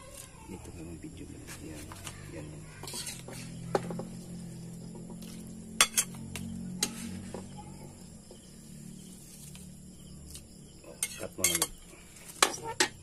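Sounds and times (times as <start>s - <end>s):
metal spatula scraping a wok: 2.8s - 3.7s, 5.2s - 6.2s, 6.8s - 7.5s, 11.0s - 13.0s.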